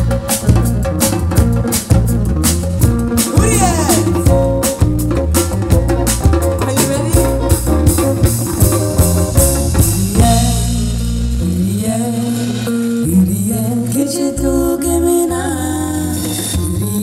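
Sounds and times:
drums: 0:00.0 - 0:17.0
guitar: 0:00.0 - 0:17.0
women singing: 0:10.0 - 0:10.8, 0:11.6 - 0:17.0.

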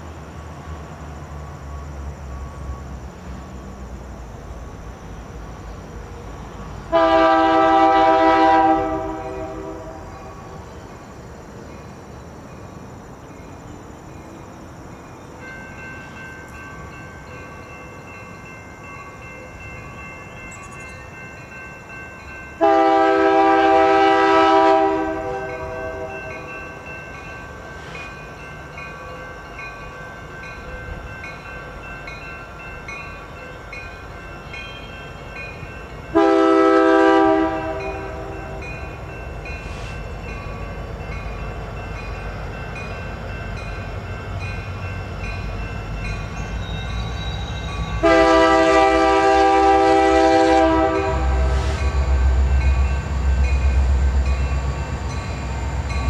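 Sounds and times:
locomotive rumble: 0:00.0 - 0:56.0
locomotive air horn blasts: 0:06.9 - 0:10.1, 0:22.6 - 0:26.5, 0:36.1 - 0:38.6, 0:48.0 - 0:52.2
steady high ringing: 0:13.3 - 0:22.9.

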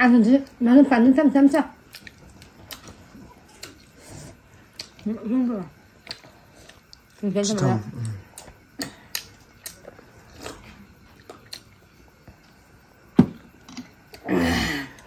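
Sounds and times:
chewing and lip smacks: 0:01.8 - 0:05.1, 0:05.8 - 0:07.2, 0:07.9 - 0:12.6.

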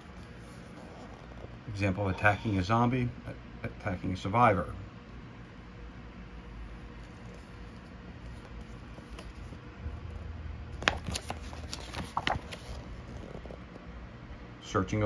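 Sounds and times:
faint low hum: 0:00.0 - 0:15.0
paper pages rustling: 0:06.9 - 0:09.6, 0:10.8 - 0:13.7.

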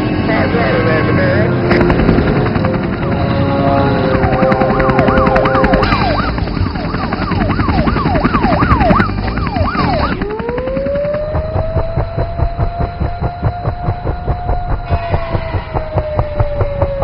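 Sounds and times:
rising whine: 0:00.0 - 0:17.0
cartoon siren wailing: 0:03.5 - 0:17.0.

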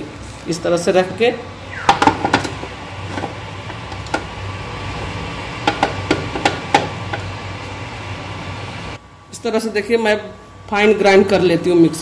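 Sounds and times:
mixer grinder humming: 0:01.8 - 0:09.0.

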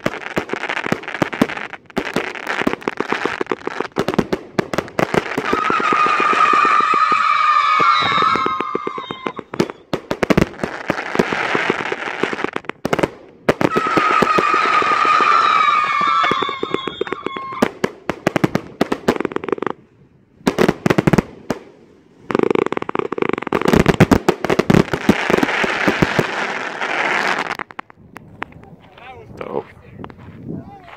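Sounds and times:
whistling firework shots: 0:00.0 - 0:19.8
firework crackling: 0:00.0 - 0:28.6.

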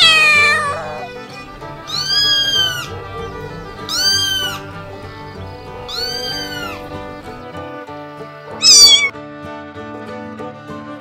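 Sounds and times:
cat meowing: 0:00.0 - 0:07.5, 0:08.5 - 0:09.1
background music: 0:00.0 - 0:11.0.

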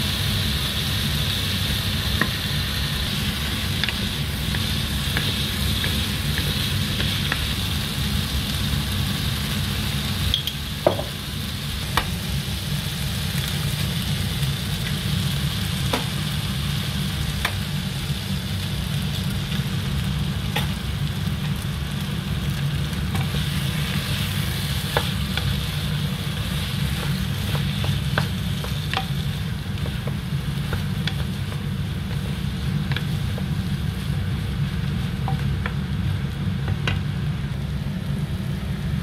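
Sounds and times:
food sizzling in a pan: 0:00.0 - 0:39.0
spatula tapping pan: 0:26.3 - 0:33.6.

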